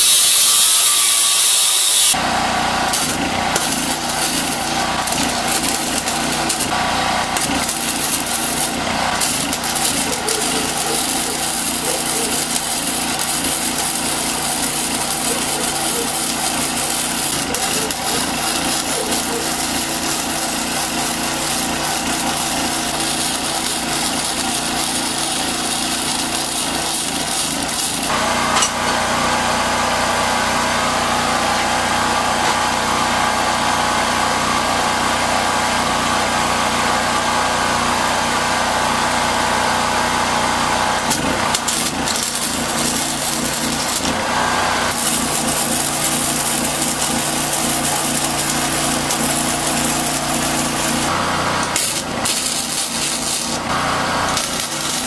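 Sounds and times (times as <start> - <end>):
welder arc crackling: 2.8 - 28.1, 41.0 - 55.0.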